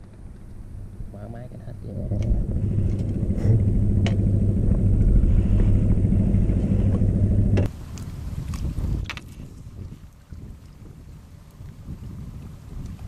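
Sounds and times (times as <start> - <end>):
motor engine humming: 0.0 - 7.7.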